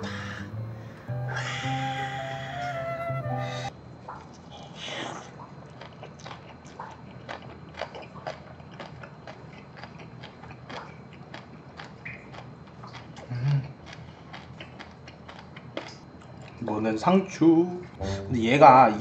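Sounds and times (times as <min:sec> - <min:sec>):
person chewing food: 0:05.4 - 0:16.6
short low hum: 0:17.9 - 0:18.8.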